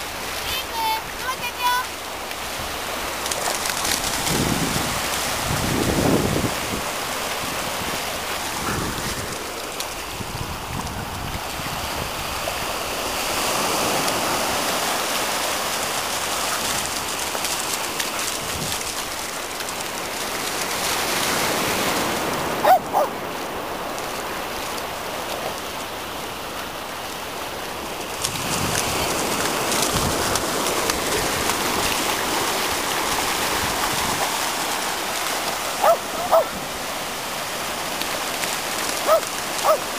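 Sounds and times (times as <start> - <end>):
surf washing on beach: 0.0 - 39.9
water splashing: 0.0 - 39.9.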